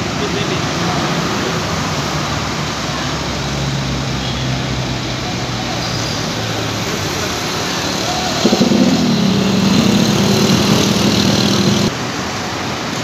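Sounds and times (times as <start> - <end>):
constant background noise: 0.0 - 13.0
bus diesel engine running: 6.9 - 11.9.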